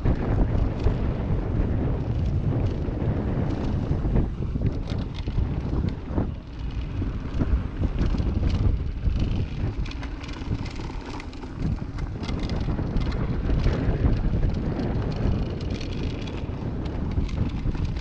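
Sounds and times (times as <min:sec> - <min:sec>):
bike rattling and clicking: 0:00.0 - 0:18.0
bike tyres on dirt: 0:00.0 - 0:18.0
wind rushing over microphone: 0:00.0 - 0:18.0.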